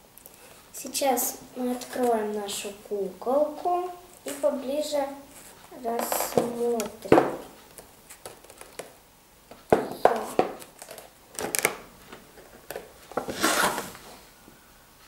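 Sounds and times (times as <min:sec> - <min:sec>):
plastic crinkling: 0:05.3 - 0:14.0
cardboard scraping: 0:12.2 - 0:14.1.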